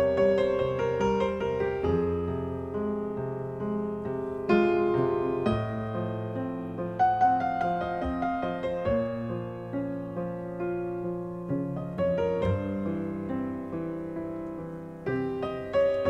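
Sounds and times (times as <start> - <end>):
background piano music: 0.0 - 16.0.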